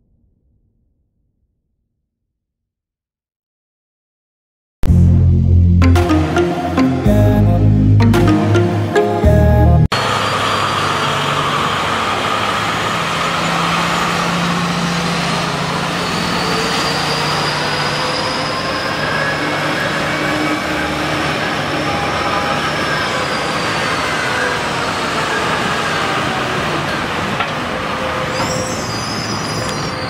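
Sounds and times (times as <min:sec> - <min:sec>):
high whine: 0:04.8 - 0:11.2
diesel truck engine drone: 0:04.8 - 0:30.0.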